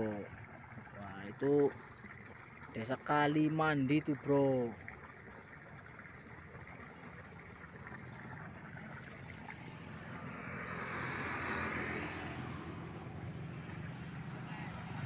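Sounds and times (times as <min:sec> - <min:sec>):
motorbike engine passing by: 0:09.6 - 0:15.0.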